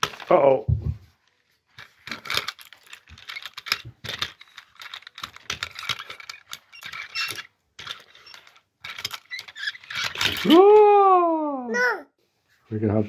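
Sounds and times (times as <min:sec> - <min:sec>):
toys clicking and clattering on paper: 0:00.0 - 0:10.8.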